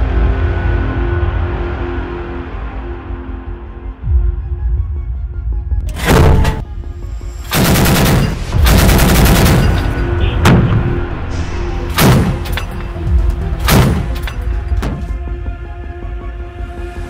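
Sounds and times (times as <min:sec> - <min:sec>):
background music: 0:00.0 - 0:17.0
heavy gunshots: 0:05.9 - 0:06.6, 0:07.5 - 0:11.0, 0:11.9 - 0:12.8, 0:13.6 - 0:15.2
automatic gunfire: 0:07.5 - 0:10.1, 0:12.0 - 0:12.5, 0:13.7 - 0:14.2.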